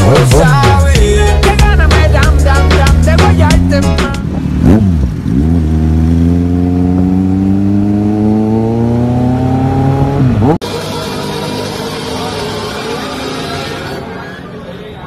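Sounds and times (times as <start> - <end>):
motorcycle accelerating through gears: 3.4 - 10.6.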